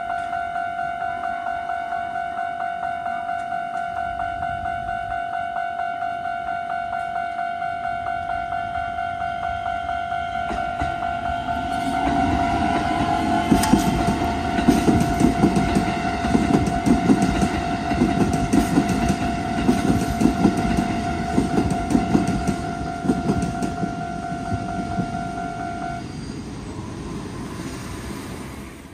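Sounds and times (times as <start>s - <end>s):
level crossing warning bell: 0.0s - 26.9s
train wheels clattering on rail joints: 10.3s - 25.2s.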